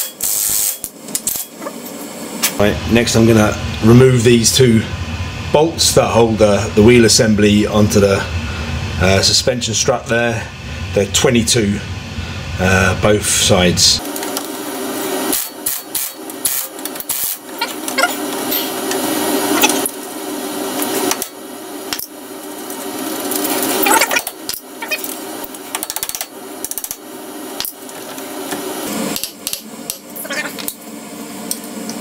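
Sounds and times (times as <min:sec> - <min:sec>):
spanner rasping and clicking on bolts: 0:24.5 - 0:27.0.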